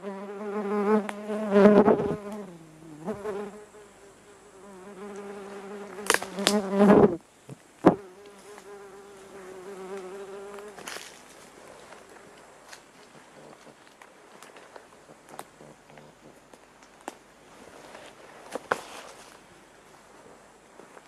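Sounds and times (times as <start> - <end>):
flying insect buzzing: 0.0 - 7.2, 7.8 - 11.2.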